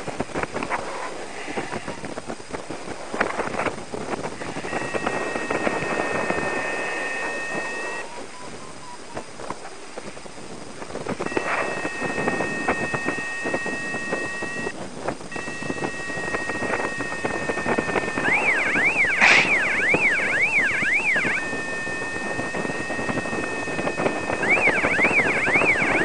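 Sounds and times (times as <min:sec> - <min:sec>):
wind buffeting microphone: 0:00.0 - 0:26.0
high electronic beep: 0:11.3 - 0:14.7, 0:15.4 - 0:26.0.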